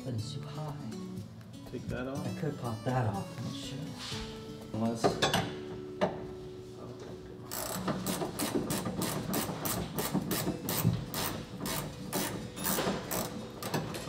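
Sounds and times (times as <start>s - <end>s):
ratchet wrench clicking: 7.5s - 13.8s.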